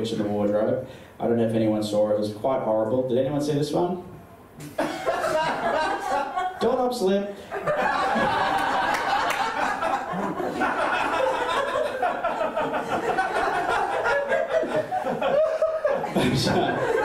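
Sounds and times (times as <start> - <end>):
audience laughing: 4.6 - 6.6, 7.5 - 17.0.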